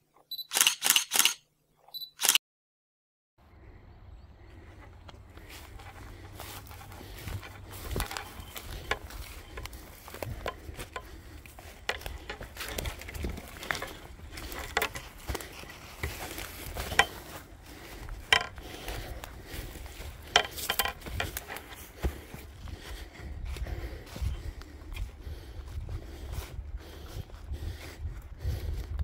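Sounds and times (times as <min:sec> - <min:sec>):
footsteps on dry leaves and grass: 0:04.5 - 0:29.0.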